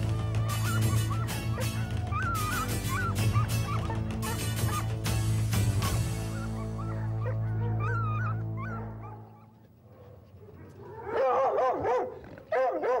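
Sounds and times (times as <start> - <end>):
background music low chord: 0.0 - 9.6
hounds whining and yelping: 0.4 - 5.0, 5.8 - 13.0.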